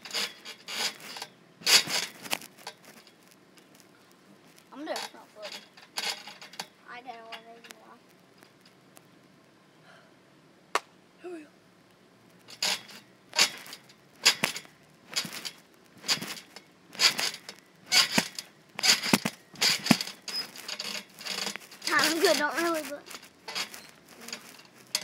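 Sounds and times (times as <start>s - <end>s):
trampoline mat bouncing: 0.0s - 2.4s, 12.5s - 25.0s.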